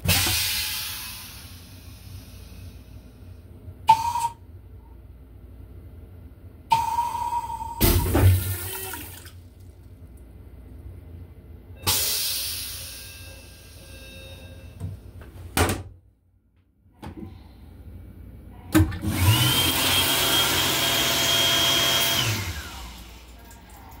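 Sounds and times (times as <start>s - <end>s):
vacuum toilet flushing: 7.8s - 9.4s, 18.7s - 24.0s
faucet running water: 7.8s - 9.7s.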